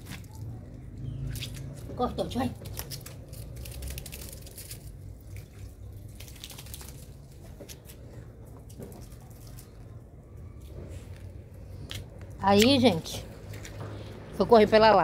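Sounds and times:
water dripping onto wet concrete: 1.3s - 8.0s, 11.9s - 13.8s.

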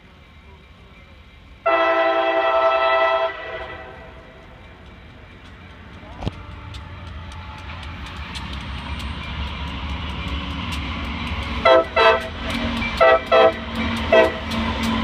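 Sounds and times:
diesel locomotives rumbling: 0.0s - 15.0s
locomotive horn blasts: 1.6s - 4.1s, 11.6s - 12.3s, 13.0s - 14.5s.

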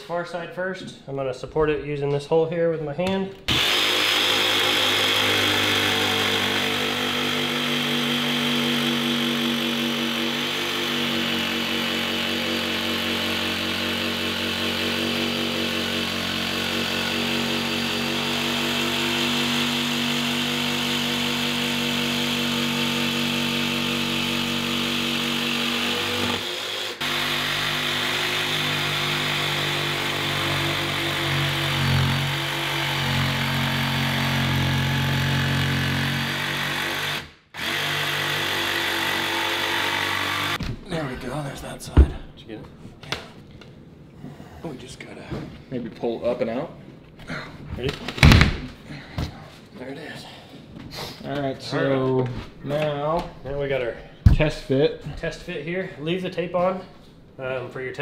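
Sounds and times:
jigsaw cutting: 3.5s - 40.6s.

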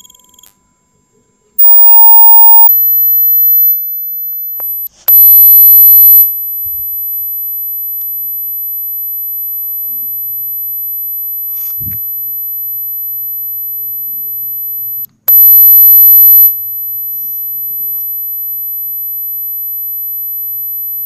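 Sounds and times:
high-pitched electronic tone: 1.6s - 2.8s
loud low-pitched beep: 1.6s - 2.9s.

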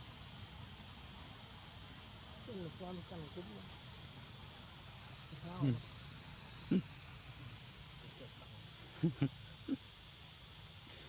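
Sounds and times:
insect chorus drone: 0.0s - 11.0s
short low calls: 6.7s - 6.9s.

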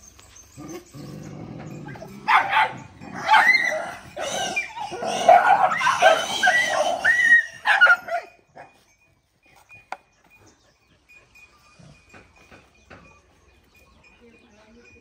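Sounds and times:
dogs yelping and barking: 0.0s - 14.1s.

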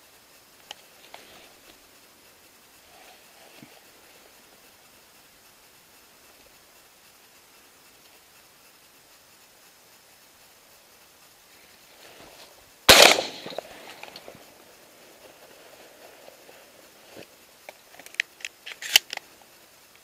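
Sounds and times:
shotgun shot: 12.9s - 13.9s.

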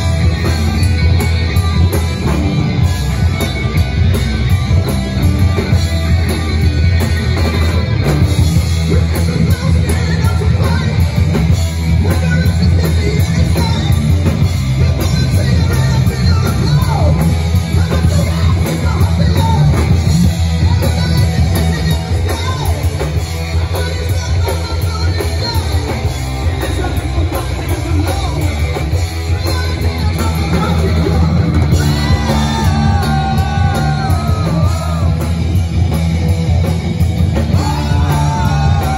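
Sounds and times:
bass guitar: 0.0s - 38.9s
drum kit: 0.0s - 38.9s
electric guitars: 0.0s - 38.9s
person singing: 8.8s - 35.4s, 37.4s - 38.9s.

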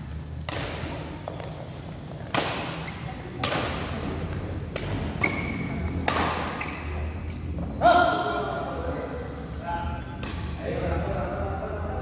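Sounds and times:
badminton rackets hitting shuttlecock: 0.3s - 7.2s, 10.2s - 10.6s
shoe squeak: 5.2s - 7.2s.

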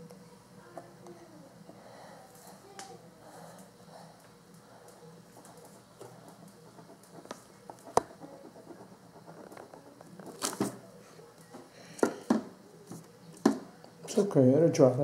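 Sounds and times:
pen scratching on paper: 5.3s - 10.0s.

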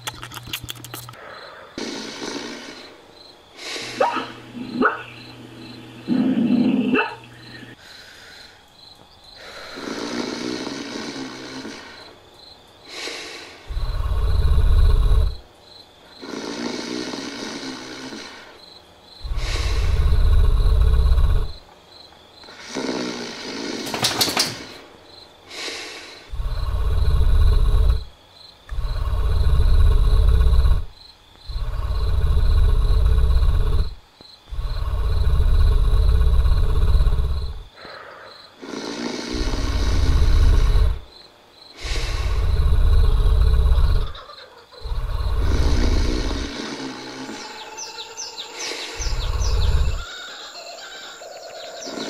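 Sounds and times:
deep rumbling snore: 1.5s - 7.8s, 9.4s - 12.3s, 12.9s - 15.5s, 16.1s - 21.7s, 22.5s - 24.8s, 25.5s - 50.1s
soft breaths: 7.1s - 21.6s, 24.6s - 50.6s.

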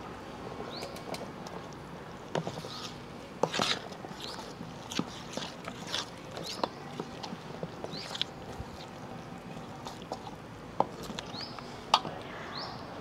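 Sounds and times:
hand squelching wet paste: 2.4s - 11.6s.

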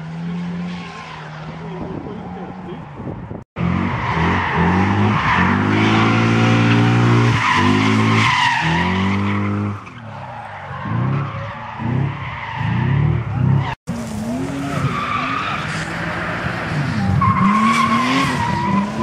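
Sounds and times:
car engine revving hard: 3.6s - 9.7s.

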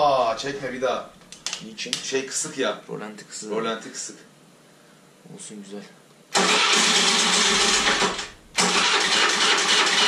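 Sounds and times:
scooter electric starter cranking: 6.4s - 10.0s.

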